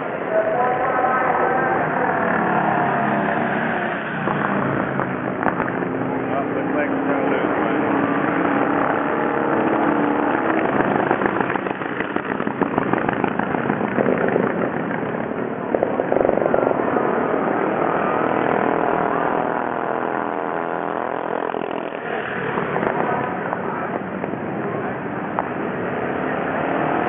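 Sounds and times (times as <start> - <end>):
motorcycles passing by: 0.0 - 27.0
racing motorcycle engines: 0.0 - 27.0.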